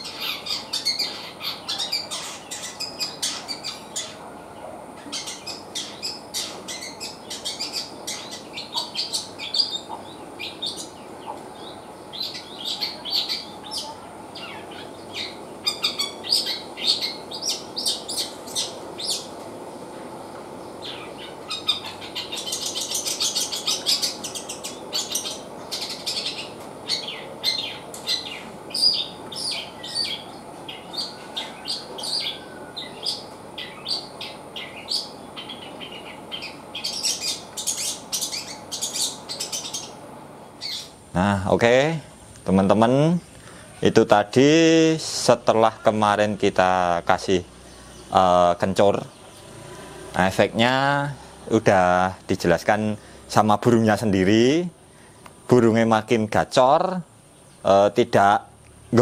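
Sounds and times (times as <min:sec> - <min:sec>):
shrike singing sharp chirps: 0:05.1 - 0:19.4, 0:20.6 - 0:40.0, 0:40.6 - 0:41.0.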